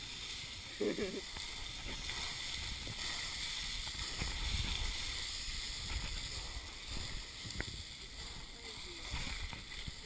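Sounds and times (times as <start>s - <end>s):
footsteps sliding on rocky scree: 0.0s - 10.0s.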